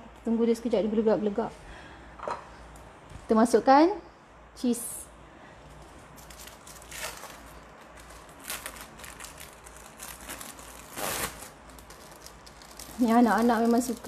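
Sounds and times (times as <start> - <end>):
plastic film crinkling and tearing: 6.2 - 14.0.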